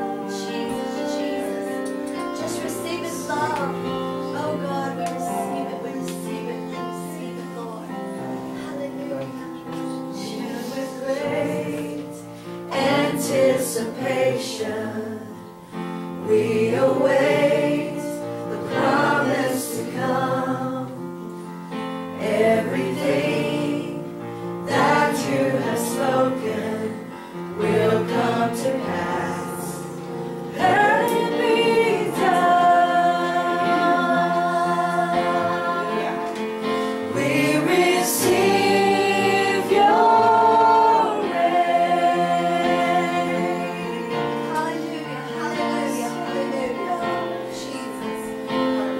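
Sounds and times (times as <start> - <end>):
held musical accompaniment: 0.0 - 48.9
voices singing gospel song: 0.0 - 48.9.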